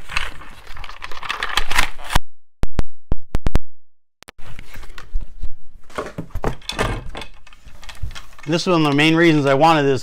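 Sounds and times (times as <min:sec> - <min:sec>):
cardboard tearing and crinkling: 0:00.0 - 0:02.1.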